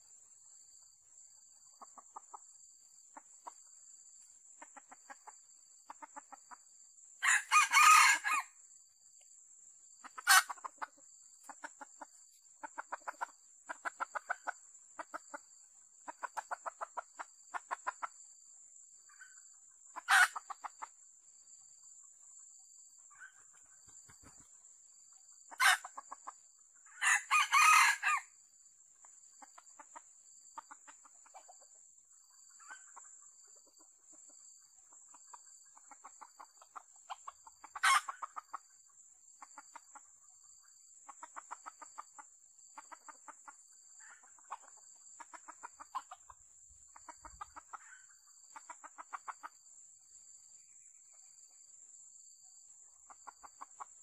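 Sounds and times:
rooster crowing: 0:07.2 - 0:08.6, 0:27.0 - 0:28.3
rapid clucking: 0:10.0 - 0:15.4, 0:32.5 - 0:38.8, 0:41.0 - 0:49.6.

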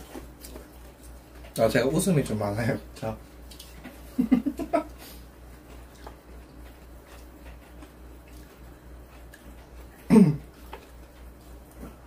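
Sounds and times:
low electrical hum: 0:00.0 - 0:12.0
woman laughing: 0:04.1 - 0:05.0.

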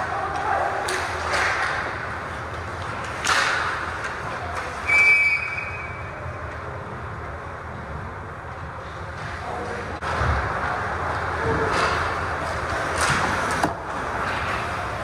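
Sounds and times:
hockey sticks and puck knocking: 0:00.3 - 0:04.8, 0:11.6 - 0:14.7
referee's whistle blast: 0:04.9 - 0:06.0.

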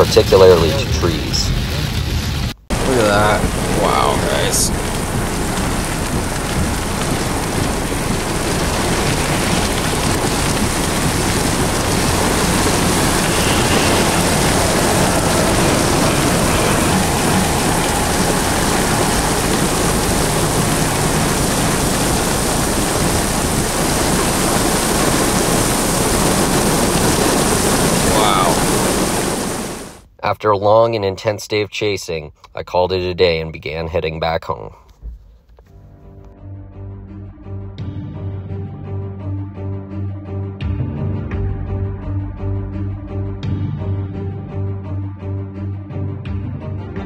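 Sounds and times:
torrential rain pouring: 0:00.0 - 0:30.1.

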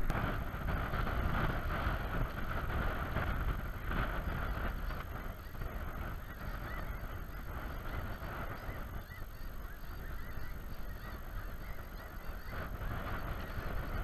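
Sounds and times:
geese honking: 0:04.2 - 0:14.0.

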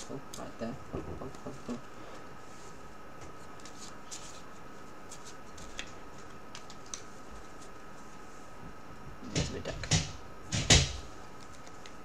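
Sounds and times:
trading cards clicking and rustling: 0:03.5 - 0:04.5, 0:05.1 - 0:07.7, 0:09.3 - 0:12.0.

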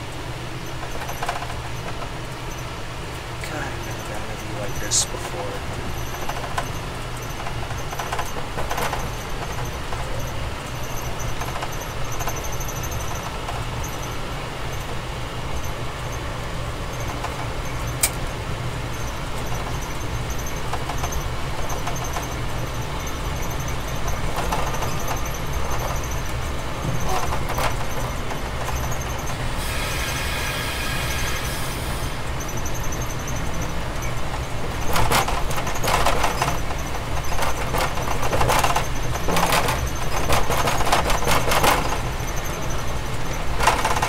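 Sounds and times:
train rumbling on track: 0:00.0 - 0:44.0
high squeal: 0:28.8 - 0:34.2.

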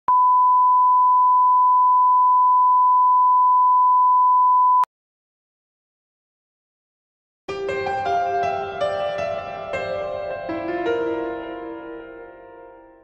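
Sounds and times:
pure test tone beep: 0:00.1 - 0:04.9.

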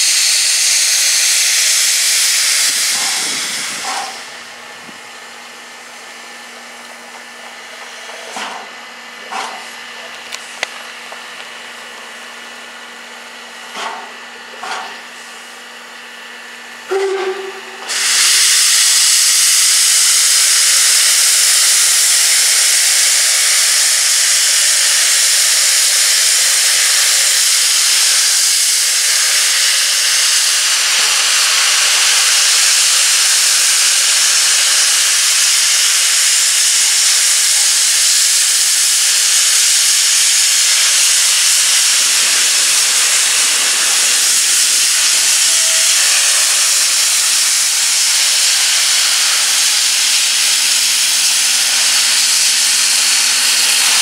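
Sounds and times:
steam locomotive puffs: 0:00.0 - 0:10.6, 0:13.6 - 0:15.6, 0:16.7 - 0:54.0
steam hissing: 0:00.0 - 0:10.9, 0:16.6 - 0:54.0
train whistle toot: 0:16.9 - 0:21.1.

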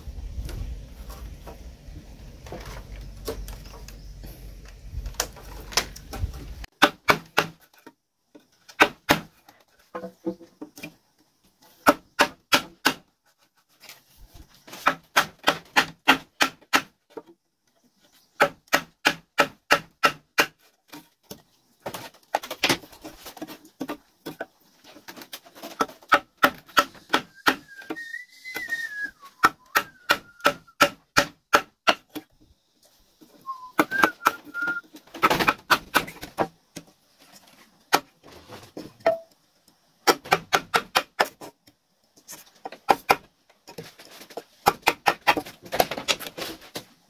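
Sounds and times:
tool chopping into wooden pole: 0:06.8 - 0:07.6, 0:11.8 - 0:13.0, 0:18.4 - 0:20.6, 0:29.4 - 0:32.2, 0:40.1 - 0:41.3.

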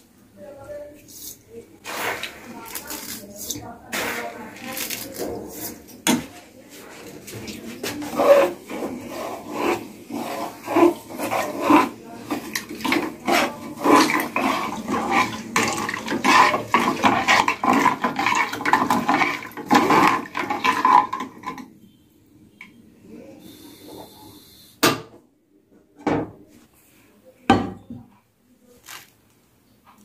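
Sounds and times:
spoon scraping and knocking in pan: 0:07.0 - 0:21.7.

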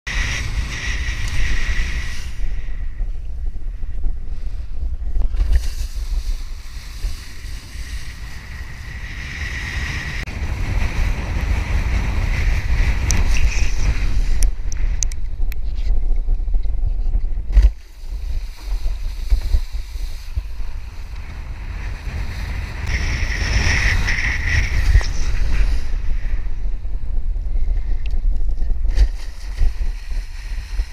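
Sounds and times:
wind buffeting microphone: 0:00.1 - 0:30.9
board skimming over water: 0:04.4 - 0:15.5, 0:17.4 - 0:30.9.

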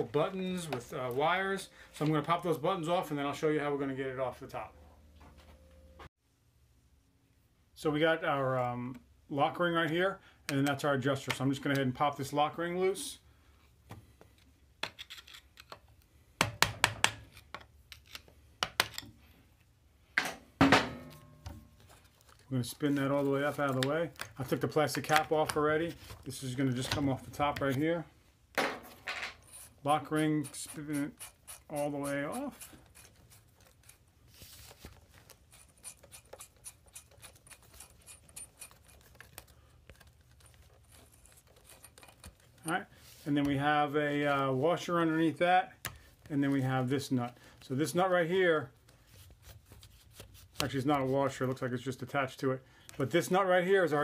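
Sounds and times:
metal lock ring clicking and scraping: 0:14.8 - 0:15.8, 0:35.7 - 0:39.3, 0:40.9 - 0:42.4.

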